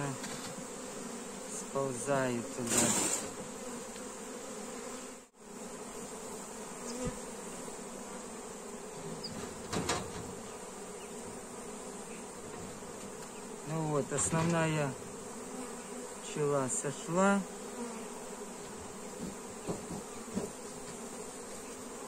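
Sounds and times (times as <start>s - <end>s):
bee swarm buzzing: 0.0s - 22.0s.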